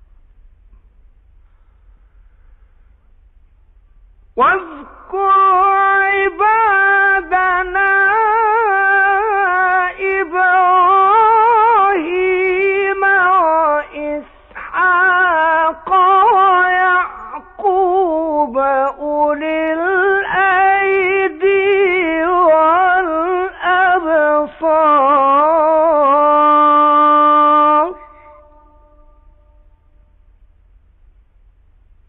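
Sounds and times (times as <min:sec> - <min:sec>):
man chanting melodically: 0:04.3 - 0:29.6.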